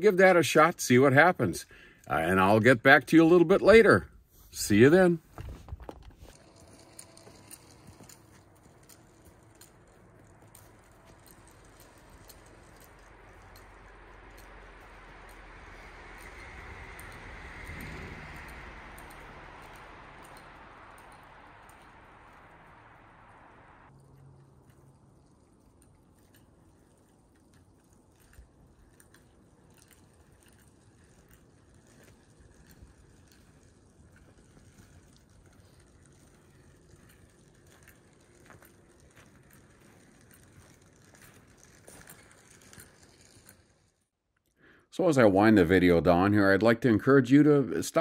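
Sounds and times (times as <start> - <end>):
faint low hiss: 0.0 - 23.9
faint low rumble: 4.0 - 44.0.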